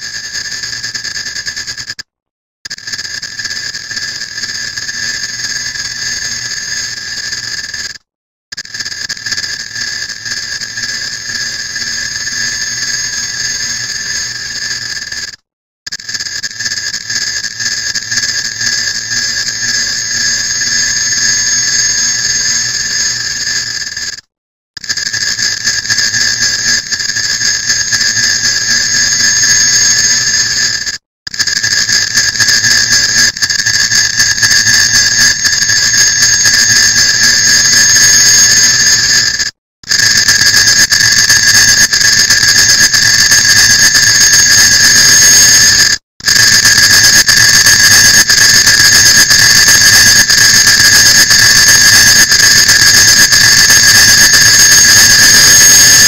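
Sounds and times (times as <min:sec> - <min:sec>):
dense clock ticks buzzing: 0:15.9 - 0:23.0, 0:24.8 - 0:30.6, 0:31.3 - 0:39.2.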